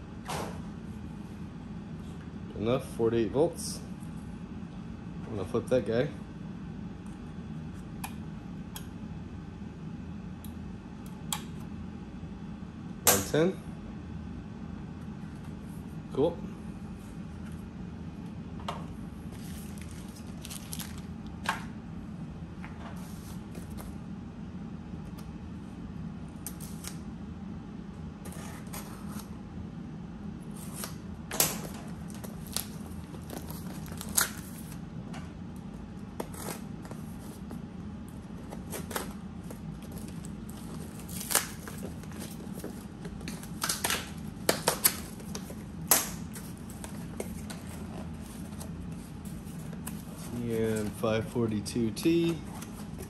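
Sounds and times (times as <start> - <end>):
packing tape pulled: 39.9 - 42.6.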